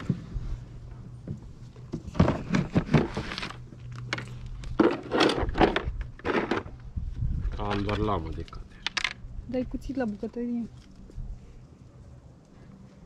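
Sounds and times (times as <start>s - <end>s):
steady low hum: 0.0s - 7.6s
clattering and rustling: 1.2s - 6.8s.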